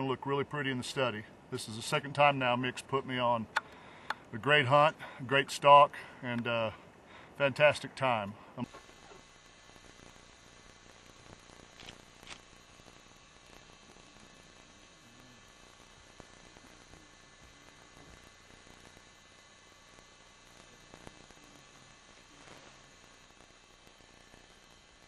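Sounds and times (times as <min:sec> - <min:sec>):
faint hum and hiss: 0:00.0 - 0:25.0.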